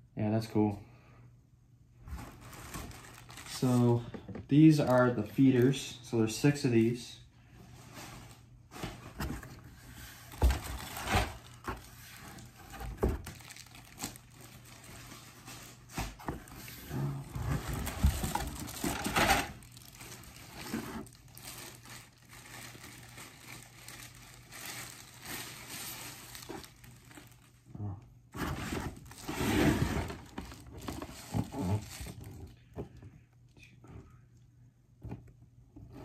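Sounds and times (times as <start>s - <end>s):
plastic wrapping crinkling: 2.3s - 4.1s, 10.3s - 16.0s, 17.2s - 27.7s, 28.9s - 32.6s.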